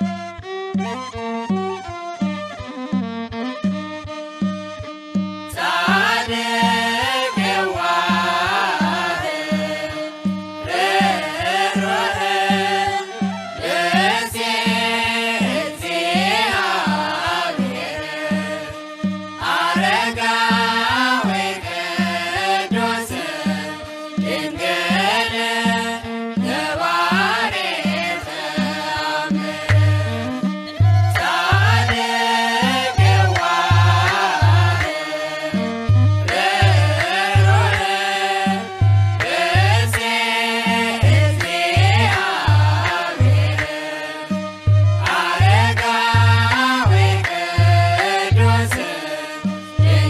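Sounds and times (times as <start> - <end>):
person chanting a melody: 5.5 - 10.1, 10.7 - 18.7, 19.4 - 35.6, 36.3 - 44.3, 45.0 - 50.0
steady drum beat: 44.7 - 49.1.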